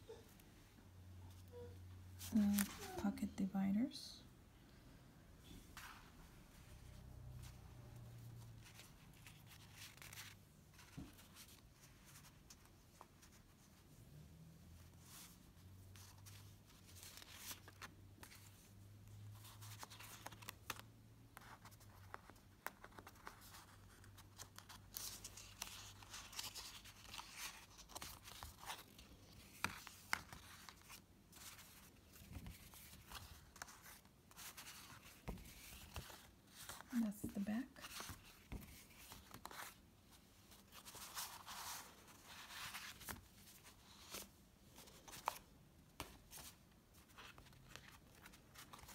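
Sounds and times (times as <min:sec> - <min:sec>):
card dividers rustling: 0:02.2 - 0:03.0.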